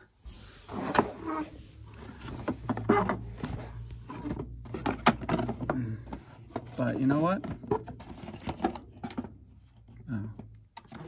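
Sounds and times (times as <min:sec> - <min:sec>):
cardboard boxes scraping and rustling: 0:00.3 - 0:09.0.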